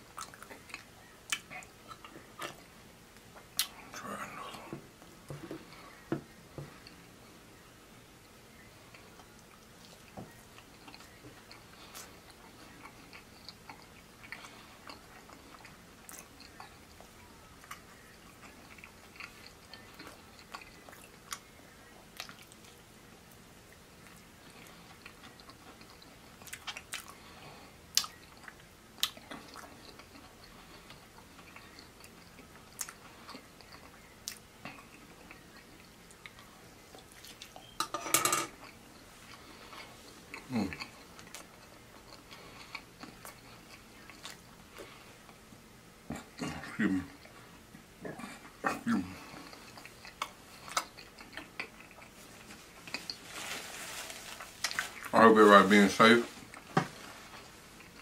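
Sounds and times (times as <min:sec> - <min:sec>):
chewing fried chicken: 0:00.0 - 0:04.7, 0:08.2 - 0:37.8, 0:38.5 - 0:58.0.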